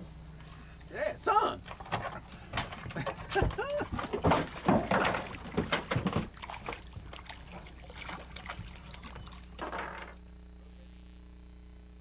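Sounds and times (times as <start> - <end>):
fish thrashing in water: 1.6 - 10.1.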